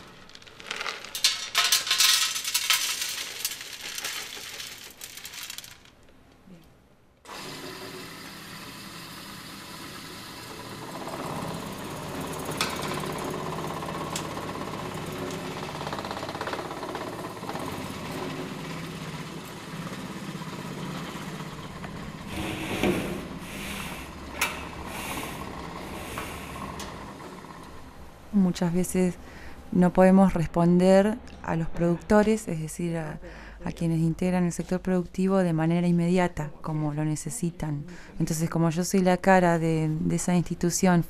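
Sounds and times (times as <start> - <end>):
grinding mill motor hum: 7.3 - 28.3.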